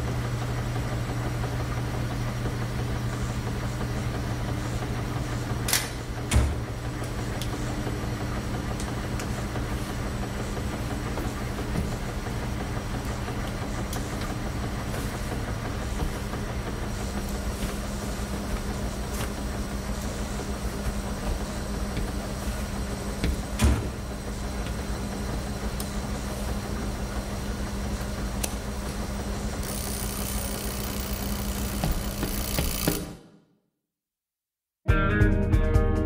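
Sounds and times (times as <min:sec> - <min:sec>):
washing machines humming: 0:00.0 - 0:33.5.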